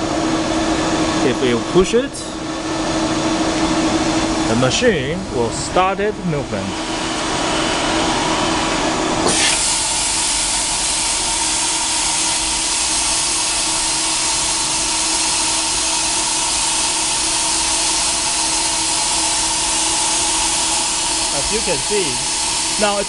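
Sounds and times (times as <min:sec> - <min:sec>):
milling machine hum: 0:00.0 - 0:23.0
hiss: 0:09.3 - 0:23.0.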